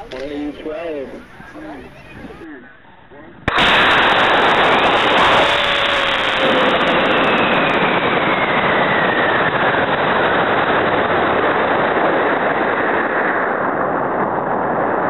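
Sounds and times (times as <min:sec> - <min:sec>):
rocket motor roaring: 0:00.0 - 0:15.0
faint falling whistle: 0:05.2 - 0:09.8.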